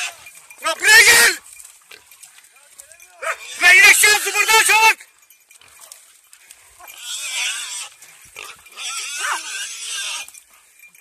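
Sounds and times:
wild boar squealing: 0:00.0 - 0:01.4, 0:03.2 - 0:04.7, 0:06.7 - 0:10.4.

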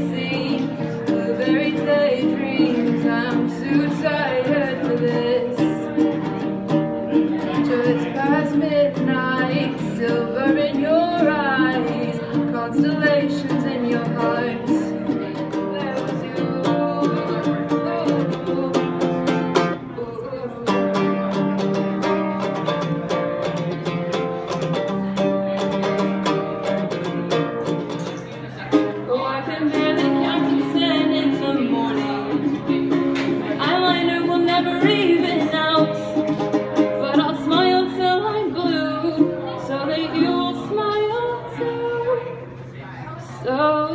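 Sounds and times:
woman singing: 0:00.0 - 0:06.5, 0:07.3 - 0:21.9, 0:29.0 - 0:42.4, 0:43.4 - 0:43.9
ukulele strumming: 0:00.0 - 0:42.7.

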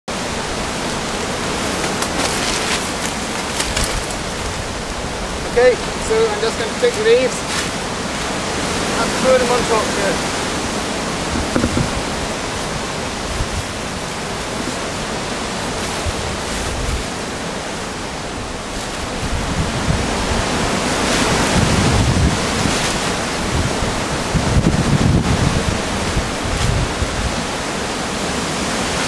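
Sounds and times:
dry leaves rustling: 0:00.2 - 0:24.9
plastic bin bag rustling: 0:01.5 - 0:04.6
wind on microphone: 0:07.8 - 0:29.0.

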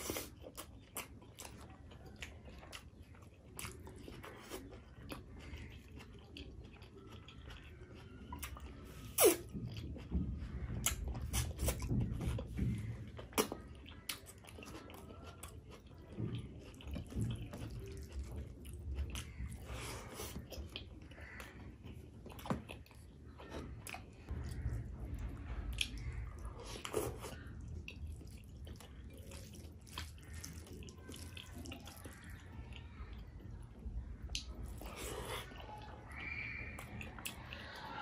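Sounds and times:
wet chewing and lip smacking: 0:00.0 - 0:38.0
fingers squelching food: 0:25.8 - 0:38.0.

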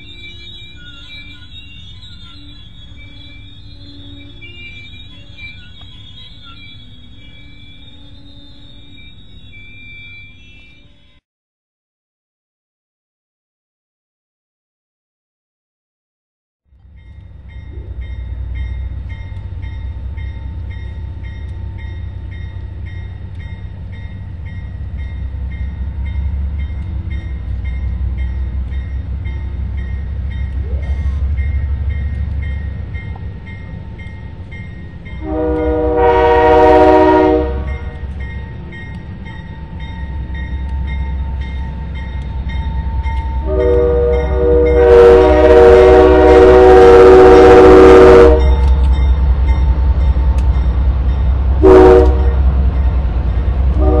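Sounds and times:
diesel train engine rumble: 0:00.0 - 0:11.2, 0:16.7 - 0:54.0
locomotive horn blast: 0:35.2 - 0:38.1, 0:43.4 - 0:48.9, 0:51.6 - 0:52.6, 0:53.6 - 0:54.0.

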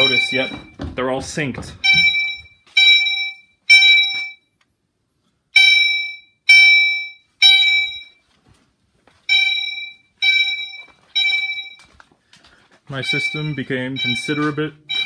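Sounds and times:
fire alarm horn blasts: 0:00.0 - 0:00.8, 0:01.8 - 0:04.5, 0:05.5 - 0:08.2, 0:09.3 - 0:11.9, 0:12.9 - 0:15.0.

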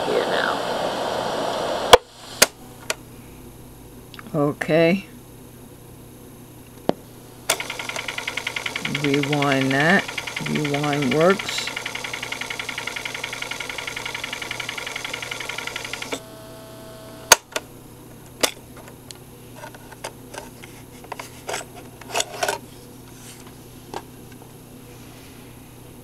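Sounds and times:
cassette recorder rewinding: 0:07.5 - 0:17.6
cassette door ejecting click: 0:17.2 - 0:17.7.

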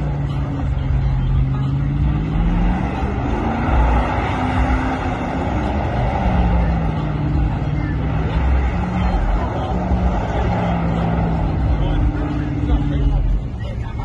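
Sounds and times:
car engine at high revs: 0:00.0 - 0:14.0
tyres spinning: 0:00.0 - 0:14.0.

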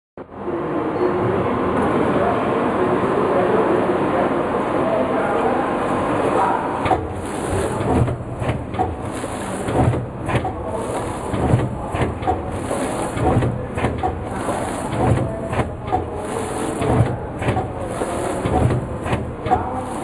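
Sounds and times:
bundling machine running: 0:05.7 - 0:20.0
machine clacks: 0:06.8 - 0:20.0.

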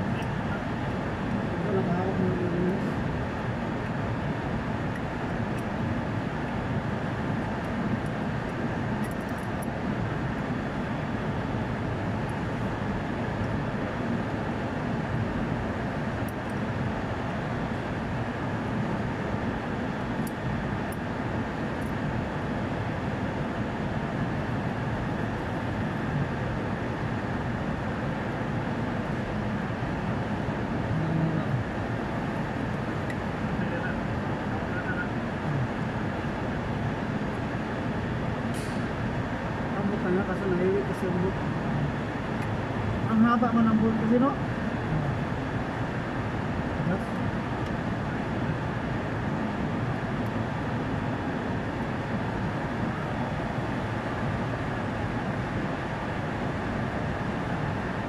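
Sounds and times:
air-conditioning machinery drone: 0:00.0 - 0:58.0.

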